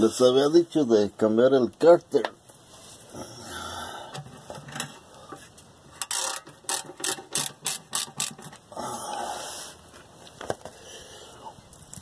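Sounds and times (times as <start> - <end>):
ratchet wrench clicking: 6.0 - 8.5.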